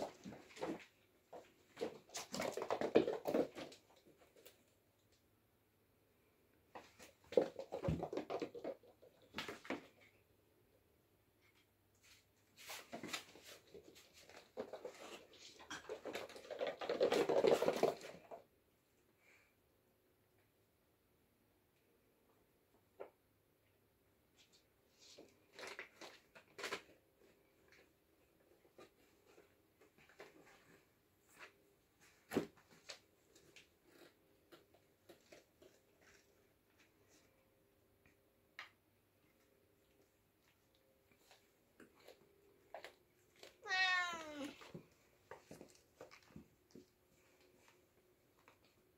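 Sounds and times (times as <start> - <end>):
kittens' paws scampering: 0.0 - 5.1, 12.7 - 18.5, 39.4 - 48.9
kittens' paws tapping and scuffling: 0.0 - 5.3, 6.6 - 10.3, 11.3 - 18.6, 24.2 - 48.9.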